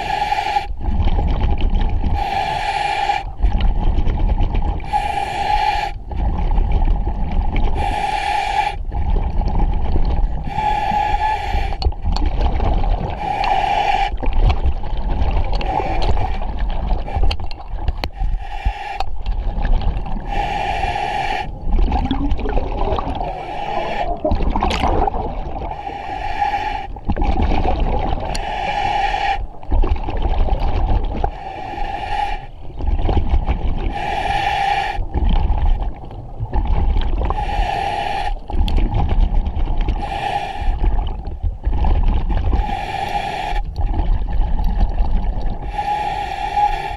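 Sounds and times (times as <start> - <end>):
diver breathing through regulator: 0.0 - 1.0, 2.0 - 4.0, 4.7 - 6.3, 7.7 - 9.2, 9.8 - 12.1, 13.0 - 14.6, 15.5 - 27.1, 28.0 - 29.7, 31.1 - 36.0, 37.2 - 38.9, 39.9 - 41.4, 42.4 - 43.8, 45.5 - 46.9
exhaled bubbles rumbling: 0.7 - 2.3, 3.2 - 5.0, 6.0 - 7.9, 8.8 - 34.3, 35.0 - 45.8.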